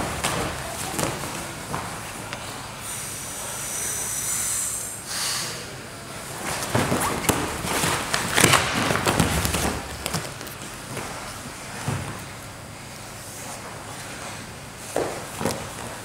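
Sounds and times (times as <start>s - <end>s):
bodies thumping on a mat: 0.0s - 2.1s, 6.4s - 12.3s, 14.8s - 16.0s.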